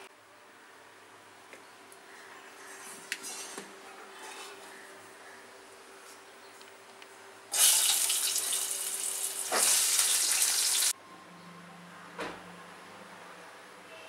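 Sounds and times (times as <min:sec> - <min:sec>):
potatoes sizzling in hot oil: 0:07.5 - 0:10.9.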